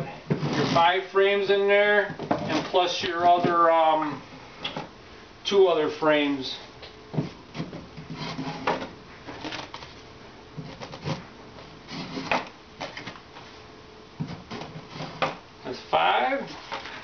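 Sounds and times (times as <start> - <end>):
wooden frames scraping: 0.3 - 1.0, 2.1 - 3.7, 7.2 - 10.0, 10.6 - 13.2, 14.2 - 15.4.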